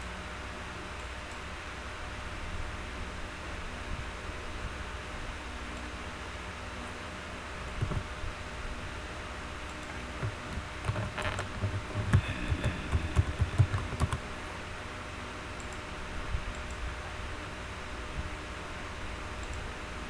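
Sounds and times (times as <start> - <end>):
steady low hiss: 0.0 - 20.0
typing on keyboard: 9.8 - 14.2.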